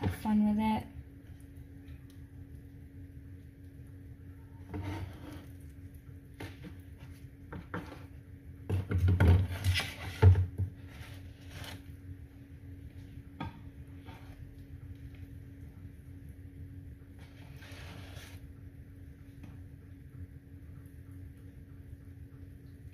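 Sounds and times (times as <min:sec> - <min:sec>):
steady low hum: 0:00.0 - 0:22.9
knife scraping: 0:04.6 - 0:05.6, 0:09.4 - 0:12.0, 0:17.2 - 0:18.5.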